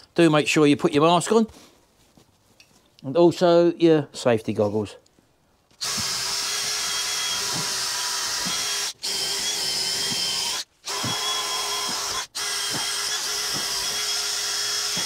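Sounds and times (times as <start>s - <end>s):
cordless drill motor running: 5.8s - 15.0s.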